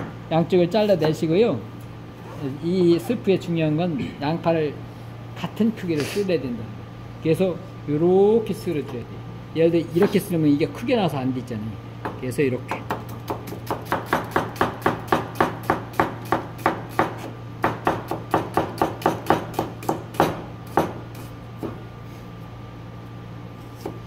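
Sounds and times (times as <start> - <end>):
steady low hum: 0.0 - 24.0
knife chopping on cutting board: 12.7 - 21.8, 23.7 - 24.0.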